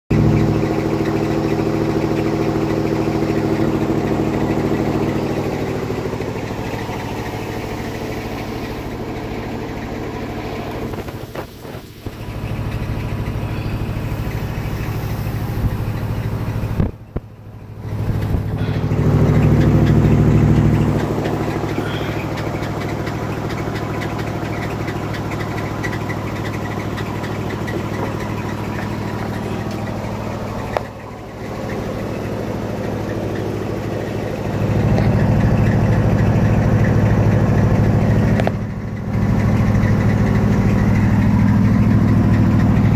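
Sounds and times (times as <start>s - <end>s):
truck engine idling: 0.1s - 42.9s.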